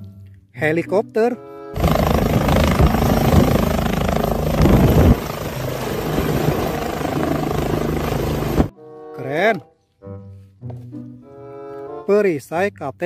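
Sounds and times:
helicopter rotor blades chopping: 1.8s - 8.7s.

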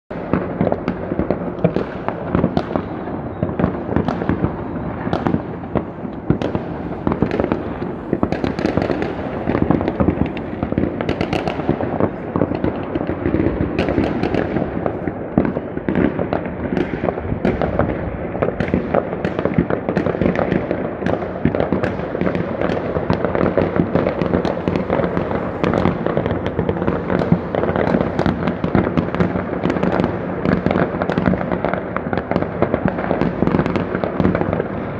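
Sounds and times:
fireworks and firecrackers banging: 0.1s - 34.9s.

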